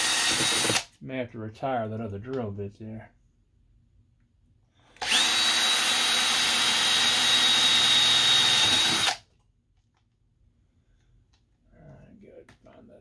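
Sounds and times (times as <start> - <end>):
cordless drill cutting steel: 0.0 - 0.9, 5.0 - 9.2.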